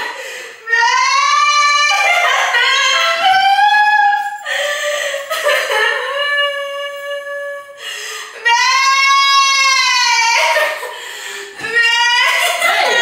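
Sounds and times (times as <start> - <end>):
woman wailing: 11.6 - 13.0.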